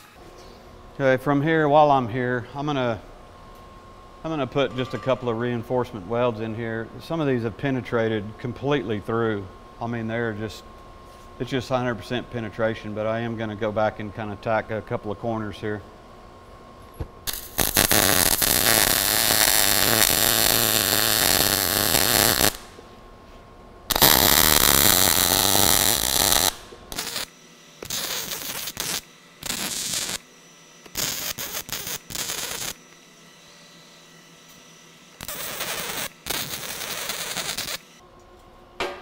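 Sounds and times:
welding arc: 0:17.2 - 0:22.8, 0:23.9 - 0:30.2, 0:30.8 - 0:32.9, 0:35.1 - 0:38.0.

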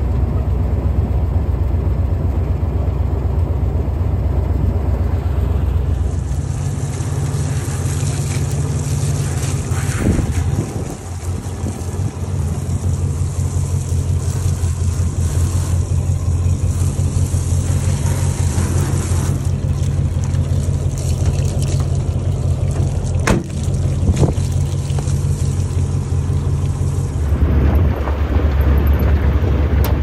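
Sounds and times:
engine running steadily: 0:00.0 - 0:30.0
water spraying and splashing: 0:05.1 - 0:30.0.

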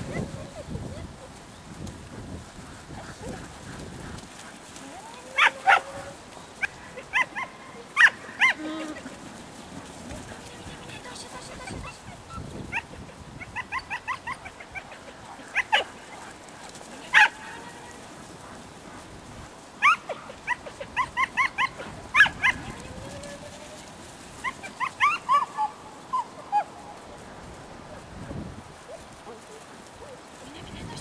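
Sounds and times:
dog barking in high yips: 0:05.4 - 0:06.0, 0:06.6 - 0:08.6, 0:11.6 - 0:15.0, 0:17.1 - 0:17.4, 0:19.8 - 0:22.8, 0:24.4 - 0:26.7.

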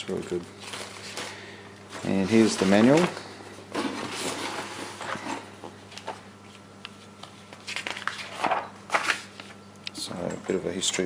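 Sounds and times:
faint hum: 0:00.0 - 0:11.0
paper rustling and tapping: 0:07.2 - 0:09.5.

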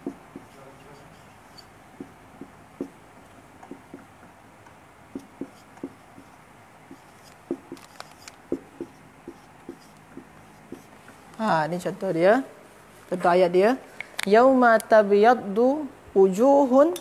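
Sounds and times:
marker tapping on whiteboard: 0:00.0 - 0:00.6, 0:02.0 - 0:03.0, 0:03.6 - 0:10.9
marker scratching on whiteboard: 0:00.0 - 0:04.1, 0:05.1 - 0:11.2.

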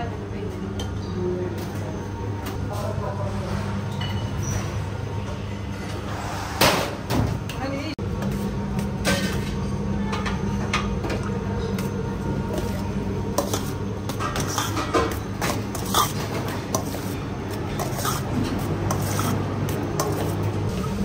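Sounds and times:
plates and utensils clinking: 0:13.4 - 0:20.7.

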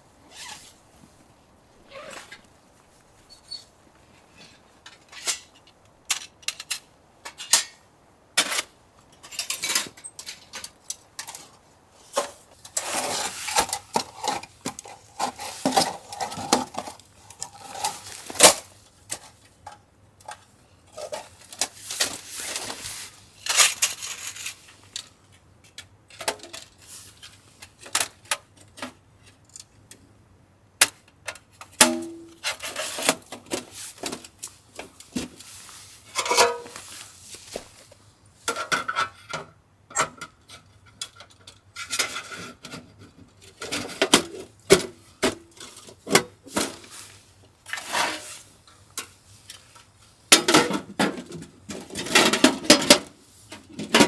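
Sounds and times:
metal stove parts clinking: 0:05.1 - 0:07.8
scraping and rubbing: 0:11.4 - 0:18.7, 0:21.0 - 0:24.9, 0:35.1 - 0:37.9, 0:46.5 - 0:48.6.

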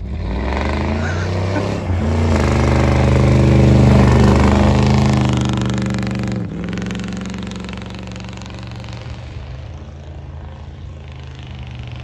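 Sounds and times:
tires spinning through snow: 0:00.0 - 0:12.0
truck engine revving high: 0:00.0 - 0:12.0.

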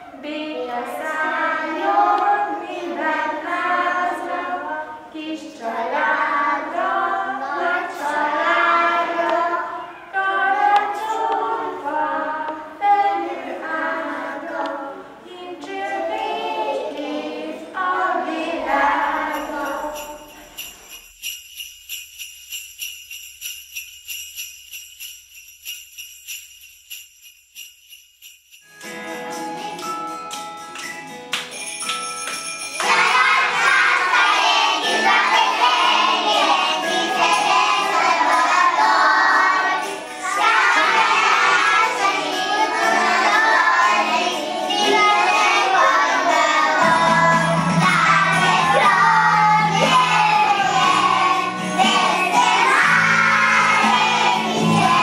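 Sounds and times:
children singing unaccompanied: 0:00.0 - 0:20.2, 0:32.8 - 0:55.0
small bells shaking in rhythm: 0:18.6 - 0:55.0.

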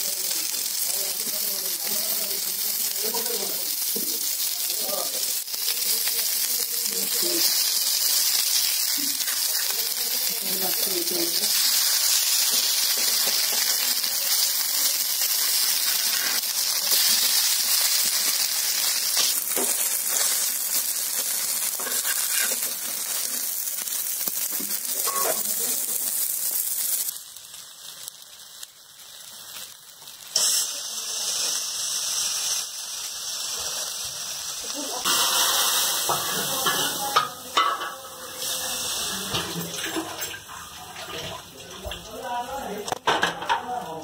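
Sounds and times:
batter sizzling in oil: 0:00.0 - 0:44.0
spatula scraping: 0:21.8 - 0:22.9.

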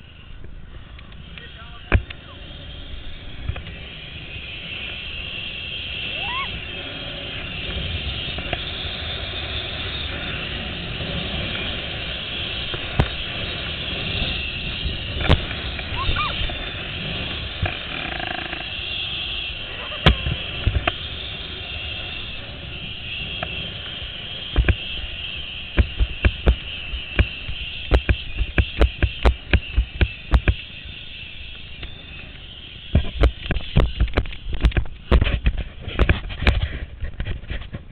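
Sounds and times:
zipwire trolley whirring: 0:02.5 - 0:22.6
pulleys running along cable: 0:04.8 - 0:19.2
wind rumble on microphone: 0:06.0 - 0:18.7, 0:32.9 - 0:37.9.

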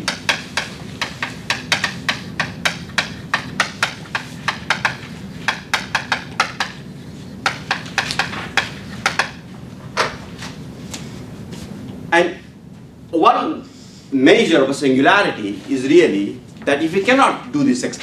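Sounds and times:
chalk tapping and scratching: 0:00.0 - 0:09.5.

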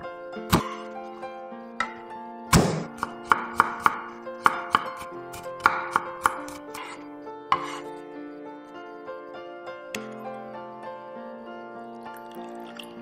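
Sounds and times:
light background music: 0:00.0 - 0:13.0
knife chopping on wooden board: 0:00.5 - 0:00.8, 0:02.5 - 0:07.0, 0:07.6 - 0:07.8
knife smashing garlic on board: 0:00.5 - 0:00.8, 0:02.5 - 0:07.0.

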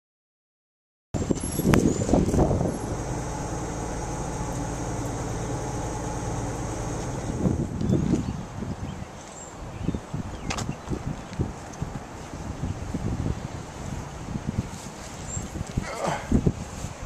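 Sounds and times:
truck engine droning: 0:01.2 - 0:08.1
rough rustling bursts: 0:01.3 - 0:07.8, 0:13.7 - 0:17.0.

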